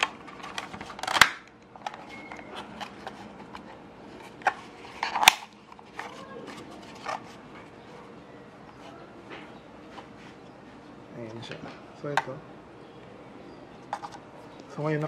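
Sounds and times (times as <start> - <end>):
plastic clips snapping: 0.0 - 2.0, 4.4 - 5.6
plastic clicks and rattles: 0.0 - 3.7.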